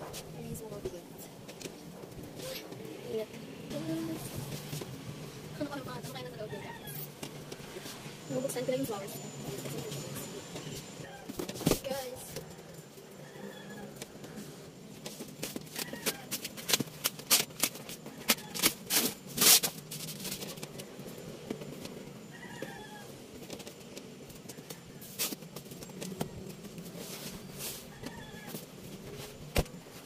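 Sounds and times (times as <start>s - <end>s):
wrapping paper tearing and rustling: 15.7s - 20.7s
faint high animal calls: 22.3s - 23.2s.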